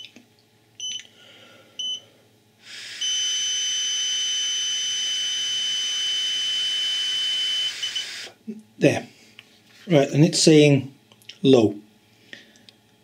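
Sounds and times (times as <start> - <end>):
continuous high beep: 1.8 - 2.0.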